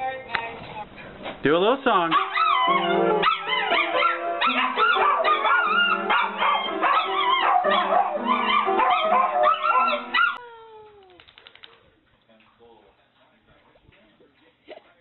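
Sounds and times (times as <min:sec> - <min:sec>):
dog howling: 0:02.2 - 0:11.2.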